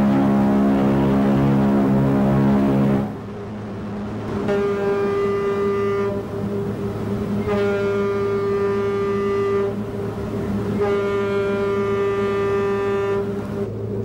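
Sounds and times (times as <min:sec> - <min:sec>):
steady low hum: 0:00.0 - 0:14.0
ship's whistle blasts: 0:04.4 - 0:06.3, 0:07.4 - 0:09.8, 0:10.7 - 0:13.7.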